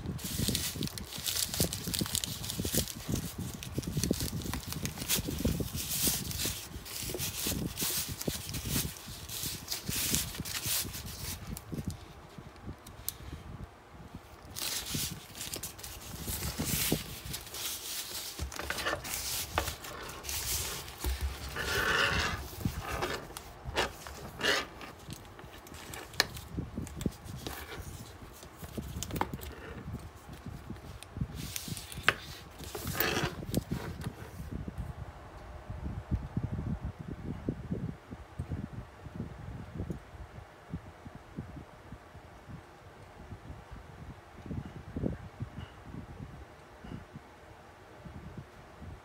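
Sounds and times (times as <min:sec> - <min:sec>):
plastic wrap crinkling: 0:00.0 - 0:12.4, 0:14.3 - 0:34.4.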